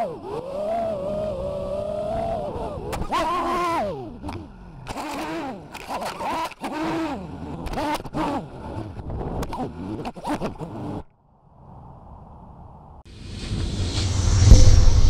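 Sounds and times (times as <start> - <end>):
quadcopter motors whining: 0.0 - 11.0.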